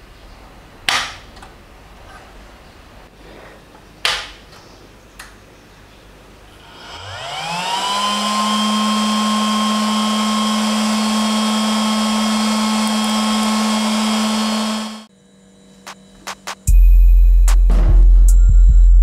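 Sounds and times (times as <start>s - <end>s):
cooling fans whining and humming: 6.0s - 16.3s.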